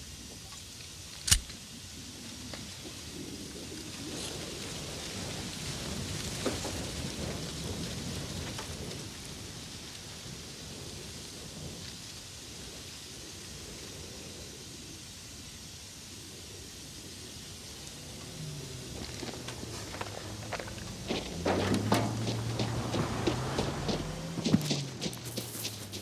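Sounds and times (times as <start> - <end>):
low rumbling noise: 16.4 - 26.0.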